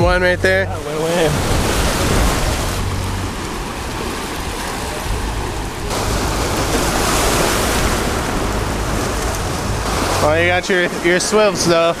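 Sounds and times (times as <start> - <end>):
ocean surf on shore: 0.0 - 12.0
wind rumbling on microphone: 0.0 - 12.0.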